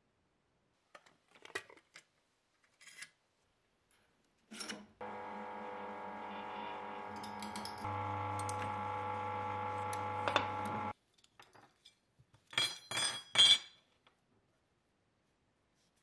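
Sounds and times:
drill press motor humming: 5.0s - 10.9s.

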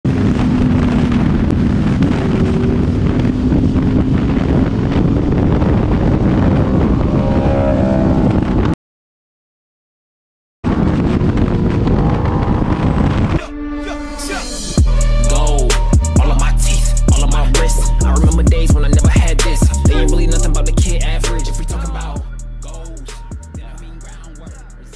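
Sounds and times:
wind noise on microphone: 0.0s - 8.8s, 10.6s - 24.9s
motorcycle engine running: 0.1s - 8.7s, 10.9s - 13.4s
rising engine whine: 0.1s - 8.8s, 10.7s - 24.9s.

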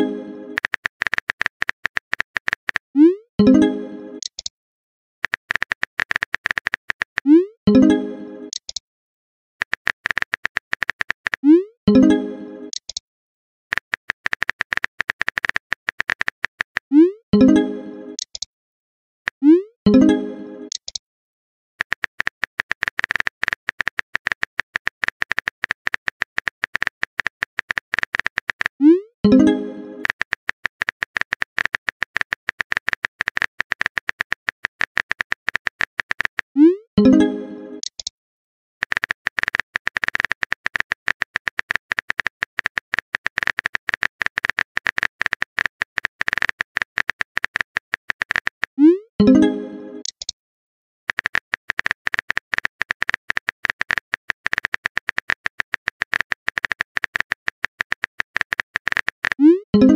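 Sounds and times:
phone keyboard typing clicks: 0.0s - 2.9s, 4.2s - 4.5s, 5.2s - 7.3s, 8.5s - 8.8s, 9.6s - 11.5s, 12.7s - 13.0s, 13.7s - 17.5s, 18.2s - 18.5s, 20.7s - 21.0s, 21.8s - 37.2s, 37.8s - 38.1s, 38.8s - 50.4s, 51.1s - 59.9s
message tone: 48.8s - 50.1s, 59.4s - 59.9s.

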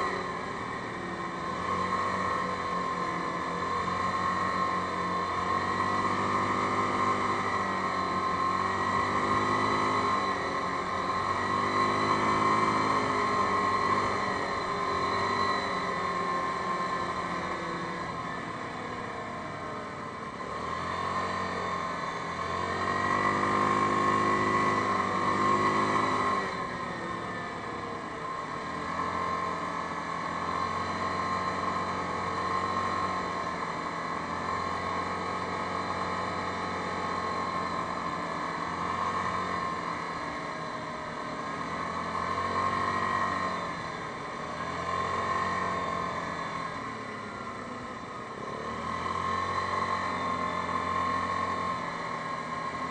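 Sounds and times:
atv engine accelerating: 0.0s - 52.9s.

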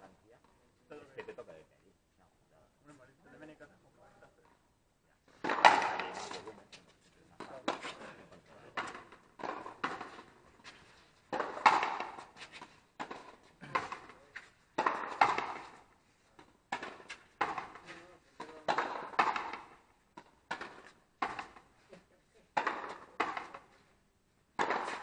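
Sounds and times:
ball hitting rackets and wall: 5.3s - 6.6s, 7.4s - 21.8s, 22.5s - 23.9s, 24.5s - 25.0s.

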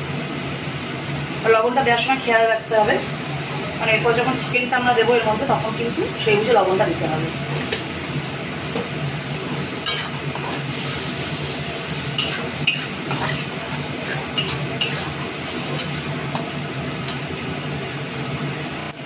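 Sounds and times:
steady frying hiss: 0.0s - 19.0s
metal spatula scraping pan: 9.5s - 17.3s.

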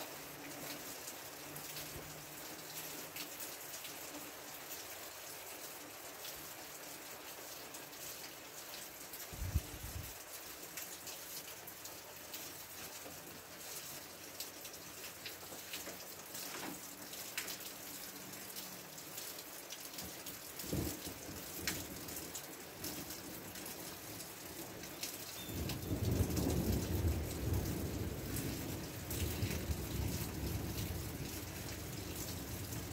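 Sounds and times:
rain shower hissing: 0.0s - 32.9s
raindrops ticking close by: 0.0s - 32.9s.

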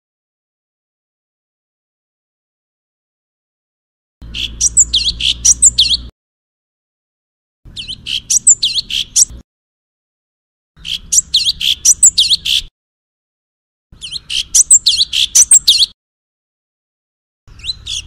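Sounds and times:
recorded songbird song: 4.2s - 6.1s, 7.7s - 9.4s, 10.8s - 12.7s, 13.9s - 16.0s, 17.5s - 18.0s.

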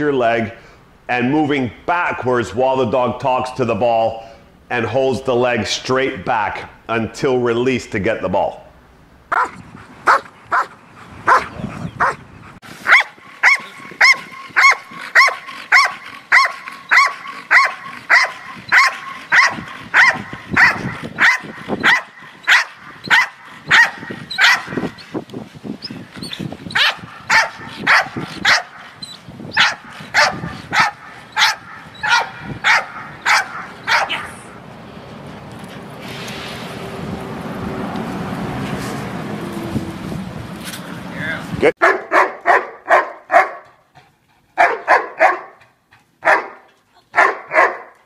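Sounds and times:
dog barking: 9.3s - 12.2s, 12.8s - 24.9s, 26.8s - 28.8s, 29.6s - 34.3s, 41.8s - 43.8s, 44.6s - 45.6s, 46.2s - 48.0s.

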